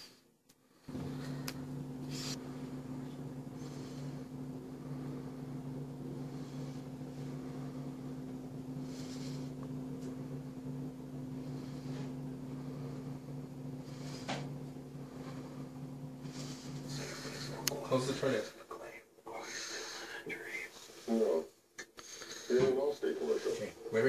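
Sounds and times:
low electrical hum: 0:00.0 - 0:24.0.

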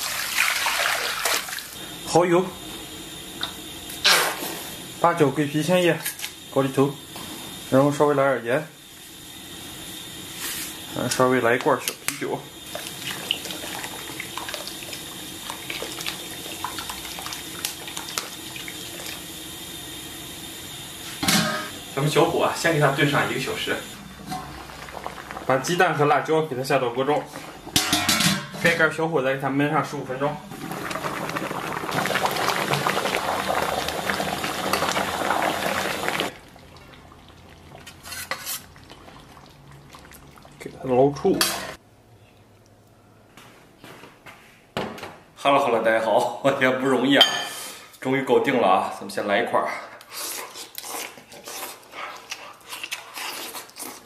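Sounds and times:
beer pouring and splashing: 0:00.0 - 0:03.8, 0:04.7 - 0:27.8, 0:30.0 - 0:41.7
sauce bubbling and crackling: 0:11.6 - 0:21.2, 0:22.6 - 0:27.8, 0:30.5 - 0:41.2.

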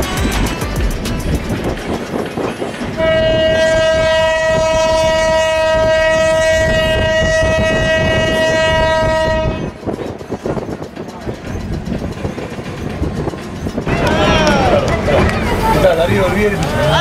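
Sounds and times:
moving train rumble: 0:00.0 - 0:17.0
train horn blast: 0:02.9 - 0:09.8.

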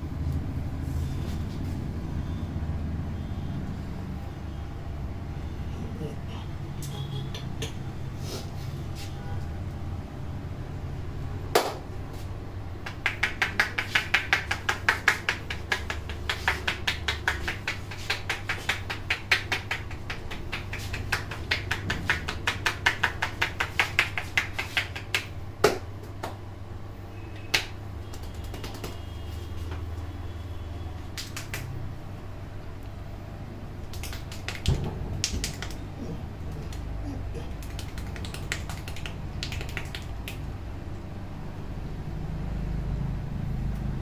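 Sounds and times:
fingers tapping on scalp: 0:12.8 - 0:26.4, 0:27.4 - 0:29.1, 0:33.8 - 0:40.5.

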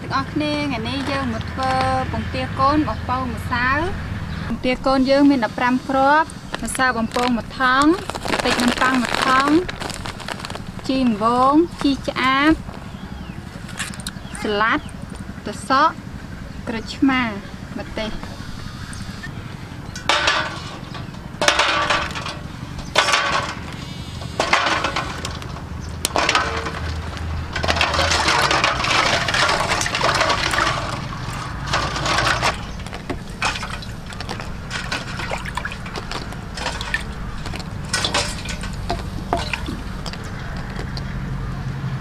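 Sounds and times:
water splashing in bowl: 0:24.4 - 0:41.1.

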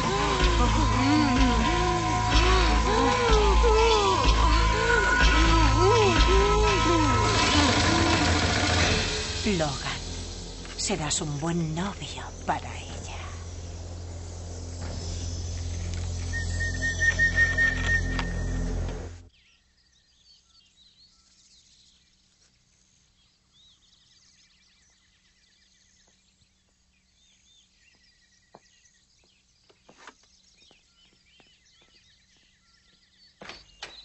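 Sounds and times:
low steady hum: 0:00.0 - 0:19.3
music: 0:00.0 - 0:19.3
birds chirping: 0:00.0 - 0:34.0.

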